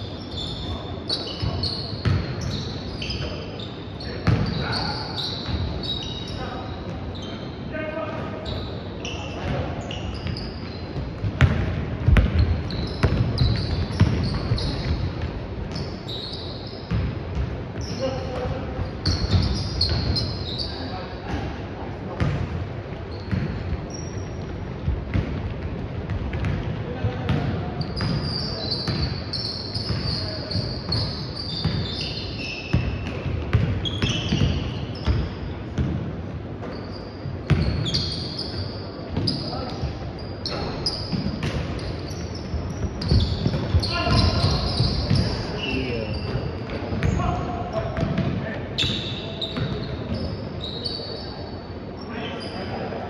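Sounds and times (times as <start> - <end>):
sneaker squeaks: 0.0 - 53.0
basketball bouncing on court: 1.4 - 2.6, 4.2 - 5.8, 9.4 - 15.9, 16.9 - 20.4, 22.2 - 22.5, 23.2 - 50.4
basketball bouncing on wooden floor: 11.0 - 15.3, 32.8 - 35.2, 42.5 - 45.5
players' voices: 39.2 - 53.0.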